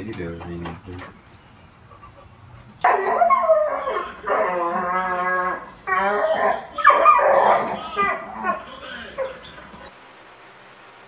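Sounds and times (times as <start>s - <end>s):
dog howling: 2.8s - 9.5s.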